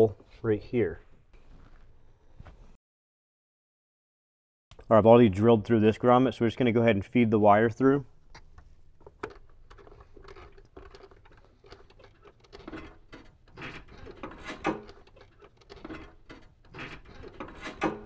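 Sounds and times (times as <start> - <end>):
cable rustling and scraping: 9.0 - 18.0.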